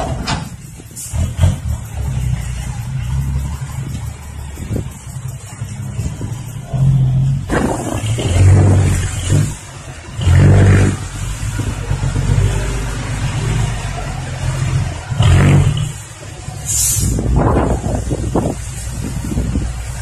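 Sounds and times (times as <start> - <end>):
diesel truck engine revving: 0.0 - 20.0
short hiss: 16.6 - 17.3.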